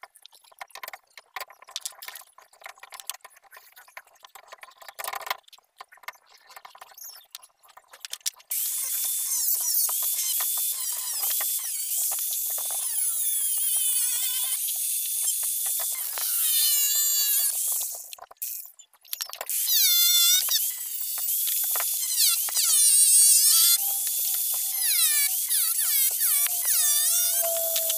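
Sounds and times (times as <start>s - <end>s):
angle grinder cutting steel: 8.5s - 18.0s, 19.5s - 27.9s.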